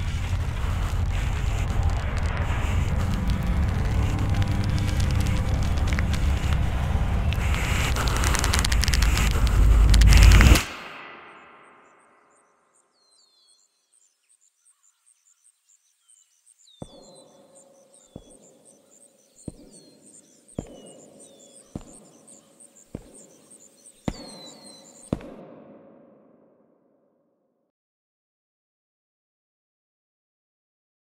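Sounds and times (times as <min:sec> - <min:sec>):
high chirping: 0:02.8 - 0:25.2.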